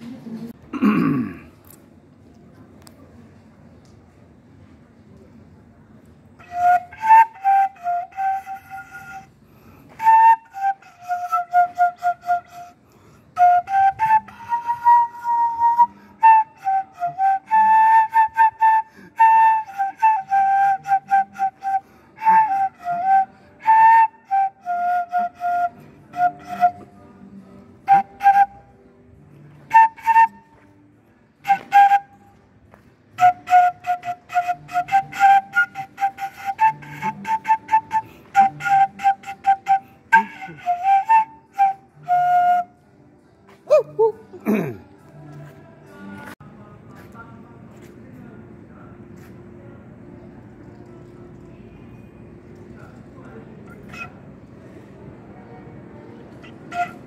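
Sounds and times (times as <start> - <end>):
flute playing slow melody: 6.4 - 32.5, 33.1 - 44.4, 53.6 - 54.5, 56.3 - 57.0.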